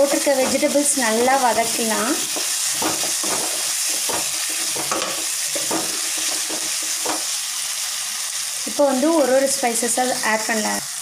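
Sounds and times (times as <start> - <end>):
spatula scraping wok: 0.0 - 7.6
vegetables sizzling in hot oil: 0.0 - 11.0.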